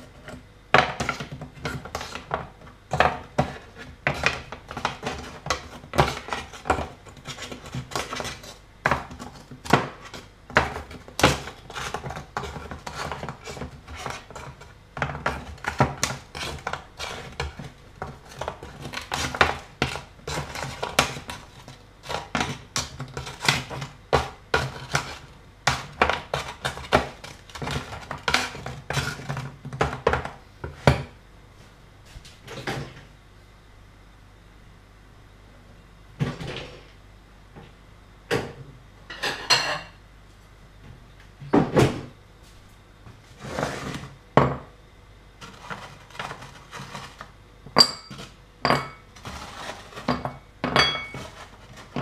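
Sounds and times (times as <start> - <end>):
plastic spatula knocking and scraping: 0.0 - 31.2, 45.4 - 48.4, 49.0 - 52.0.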